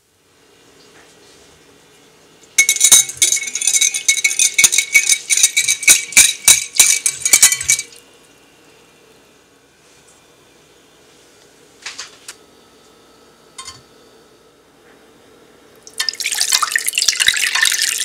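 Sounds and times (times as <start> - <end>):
whisk clinking against glass bowl: 2.6 - 8.0.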